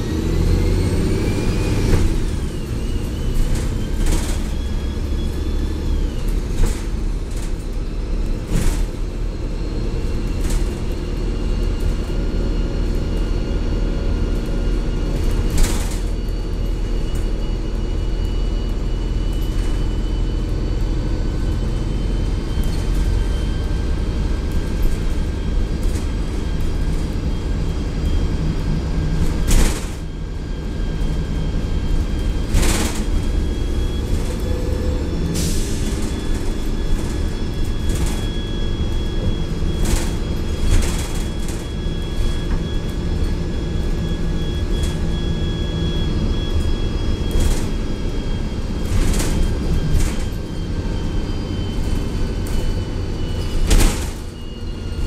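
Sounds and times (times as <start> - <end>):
bus diesel engine rumble: 0.0 - 55.0
transmission whine: 0.0 - 55.0.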